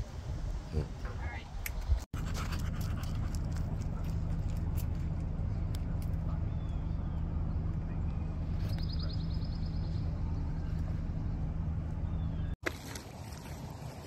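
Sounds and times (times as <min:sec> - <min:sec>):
low mechanical hum: 0:02.2 - 0:12.6.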